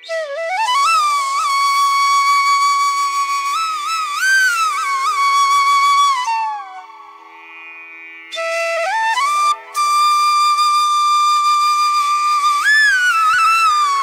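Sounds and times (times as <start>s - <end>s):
solo flute melody: 0.0s - 7.6s, 8.3s - 14.0s.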